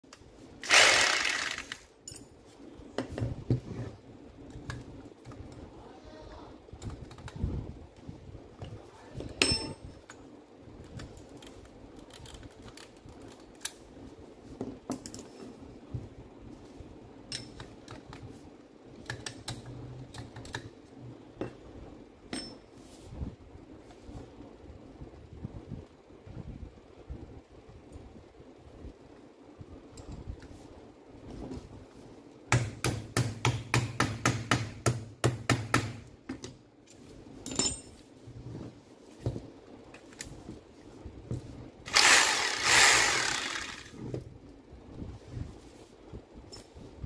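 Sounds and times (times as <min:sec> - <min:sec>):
drill parts clicking and knocking: 0:00.6 - 0:01.8, 0:41.9 - 0:44.0
hammer drill burst: 0:00.6 - 0:01.8, 0:41.9 - 0:44.0
metallic clink: 0:09.4 - 0:10.0, 0:37.4 - 0:38.0.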